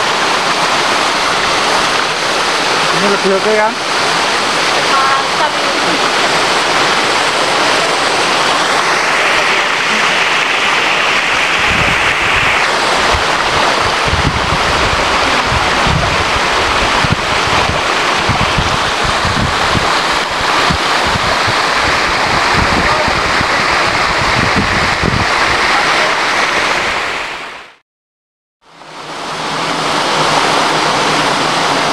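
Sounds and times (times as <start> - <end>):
waterfall rushing: 0.0 - 27.8, 28.7 - 31.9
wind buffeting microphone: 5.6 - 27.2.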